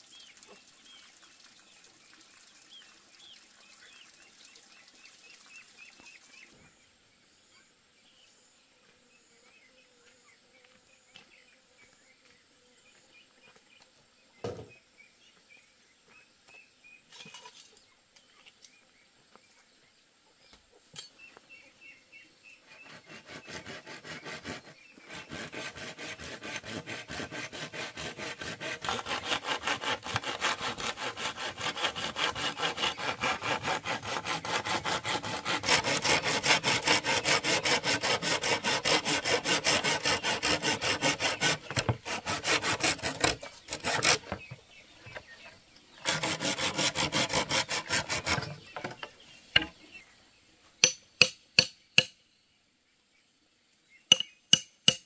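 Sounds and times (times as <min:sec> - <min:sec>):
hand saw cutting bamboo: 0:22.7 - 0:45.2, 0:46.0 - 0:49.7.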